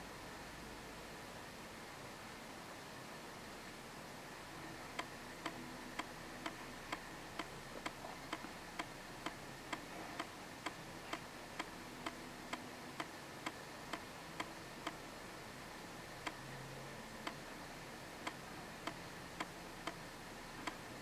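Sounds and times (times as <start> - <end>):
faint room hiss: 0.0 - 21.0
mechanical ticking: 5.0 - 15.0.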